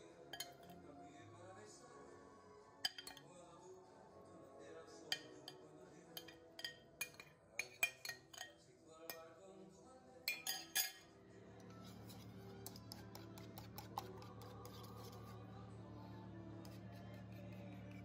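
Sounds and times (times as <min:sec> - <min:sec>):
soft background music: 0:00.0 - 0:18.0
spoon clinking against glass bowl: 0:00.3 - 0:00.8, 0:02.8 - 0:03.2, 0:05.1 - 0:09.3, 0:10.3 - 0:11.1.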